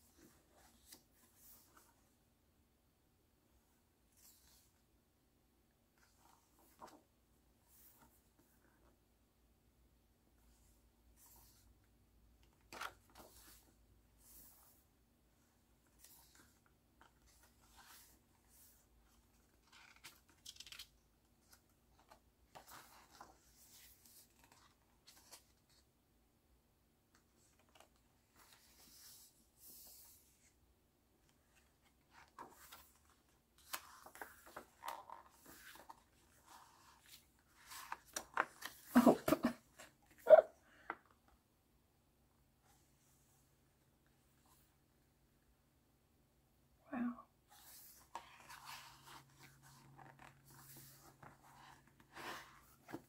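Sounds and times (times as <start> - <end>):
photo album pages rustling: 0.0 - 2.0, 5.9 - 7.1, 12.4 - 13.7, 15.9 - 25.9, 27.1 - 30.5, 31.2 - 41.4, 47.5 - 53.0.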